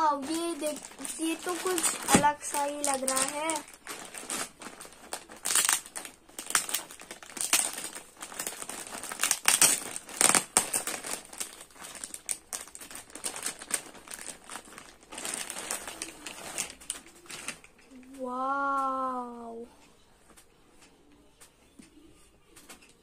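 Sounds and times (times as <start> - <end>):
plastic bag crinkling: 0.0 - 18.2.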